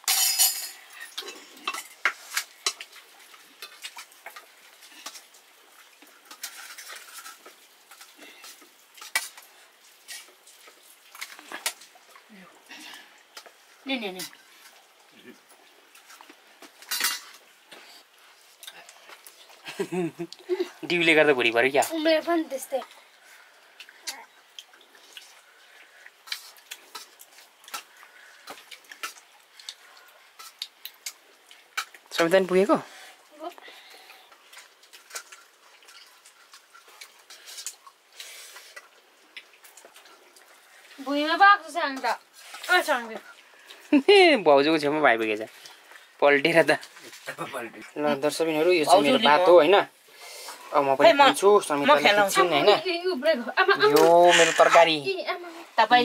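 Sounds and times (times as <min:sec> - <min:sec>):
steel plates and cups clinking: 0:00.0 - 0:02.8, 0:16.9 - 0:17.4
wet squishing of rice: 0:01.0 - 0:56.0.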